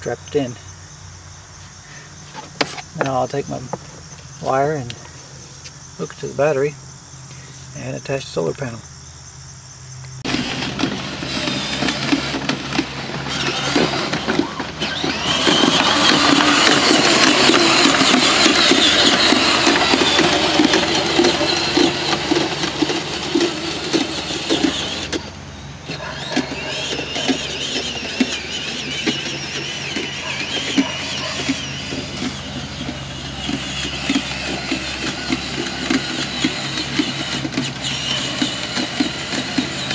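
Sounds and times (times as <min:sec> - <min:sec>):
toy car motor whine: 0:10.2 - 0:39.9.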